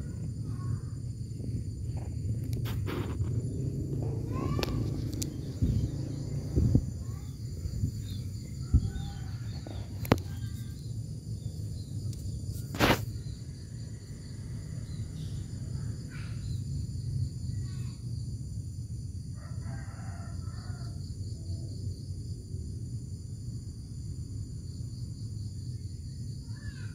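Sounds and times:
low rumble: 0:00.0 - 0:12.5
bird calling: 0:04.0 - 0:06.4.

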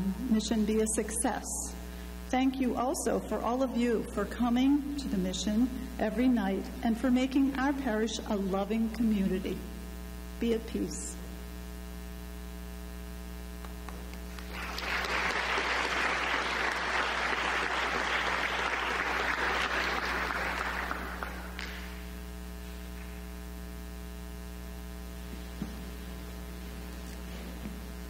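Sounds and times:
mains hum: 0:00.0 - 0:28.0
congregation applauding: 0:13.8 - 0:22.1.

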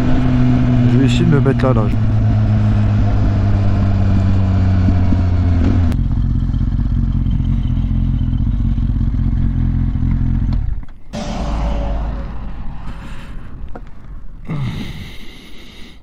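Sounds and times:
motorcycle engine running: 0:02.0 - 0:11.5.

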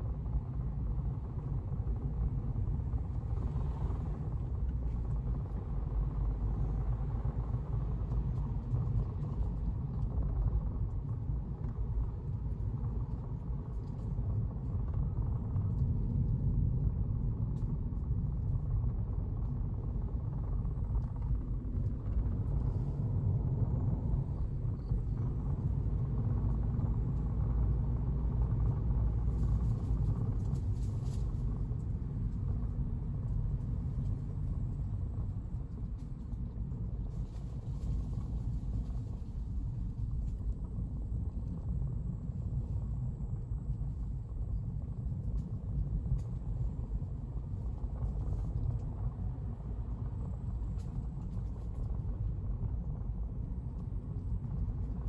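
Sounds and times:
car engine and road noise: 0:00.0 - 0:17.3.

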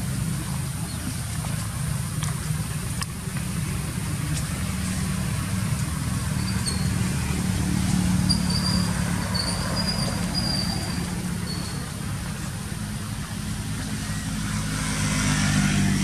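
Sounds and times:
low engine hum: 0:00.0 - 0:16.0
faint high squeaks: 0:06.4 - 0:07.3, 0:08.1 - 0:12.0.

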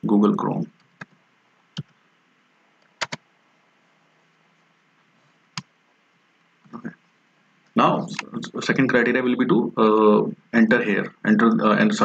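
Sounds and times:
faint steady hiss: 0:00.0 - 0:12.0
keyboard and mouse clicks: 0:01.8 - 0:02.0, 0:02.8 - 0:03.2.

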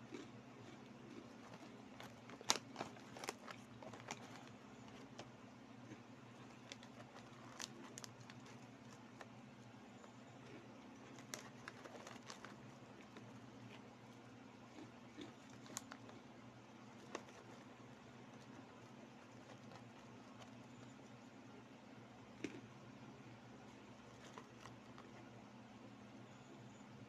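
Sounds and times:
foil snack bag crinkling: 0:00.1 - 0:05.3, 0:05.9 - 0:09.4, 0:10.1 - 0:13.9, 0:14.6 - 0:16.2, 0:16.8 - 0:20.8, 0:24.0 - 0:25.2.

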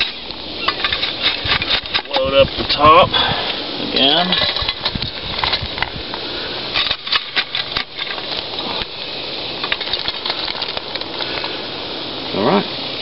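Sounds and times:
hot coals clinking on tin lid: 0:00.0 - 0:02.9, 0:04.0 - 0:05.9, 0:06.7 - 0:08.9, 0:09.6 - 0:11.5
steady hiss: 0:00.0 - 0:13.0.

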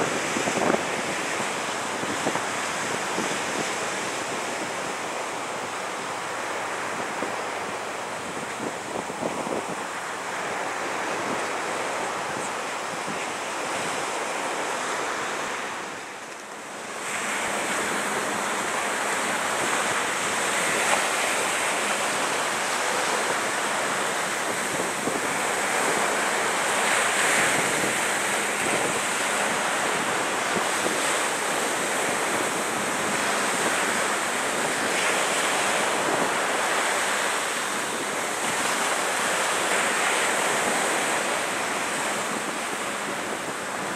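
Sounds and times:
wind buffeting microphone: 0:00.0 - 0:16.1, 0:16.8 - 0:43.9
water washing on shoreline: 0:00.0 - 0:43.9.

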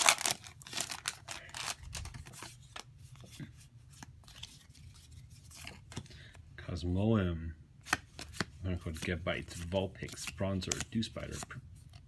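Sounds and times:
trading cards clicking and rustling: 0:00.0 - 0:06.4, 0:07.8 - 0:12.0.

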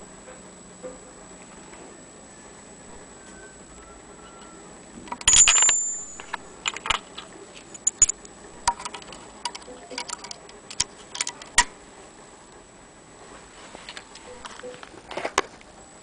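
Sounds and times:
small metal parts clinking: 0:05.1 - 0:11.6.

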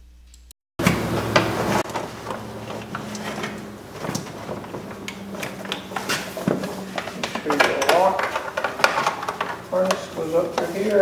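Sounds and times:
plastic trim panel clicking and rustling: 0:02.7 - 0:10.0.

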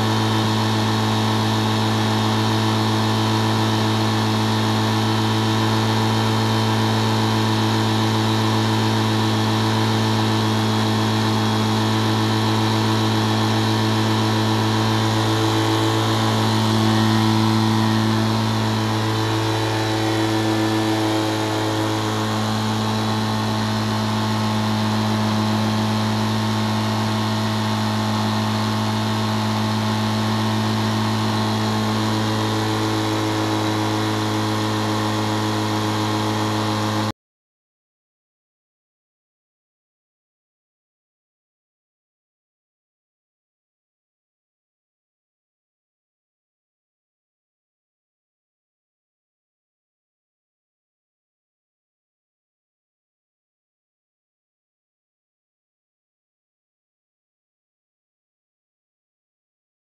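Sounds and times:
engine and propeller idling: 0:00.0 - 0:37.1.

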